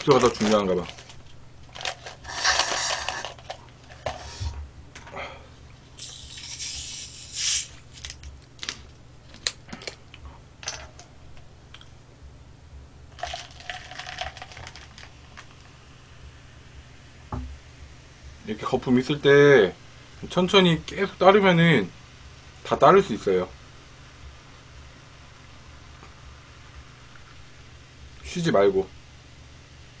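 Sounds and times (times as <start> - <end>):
cola pouring and fizzing: 13.1 - 15.6.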